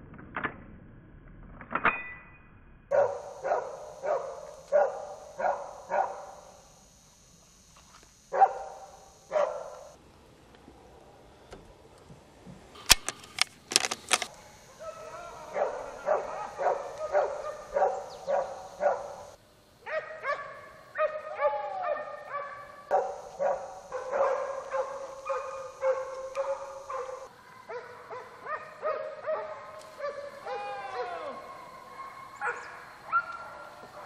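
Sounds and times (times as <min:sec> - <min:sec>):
dogs barking: 0:02.9 - 0:06.6, 0:08.3 - 0:10.0, 0:14.3 - 0:34.0.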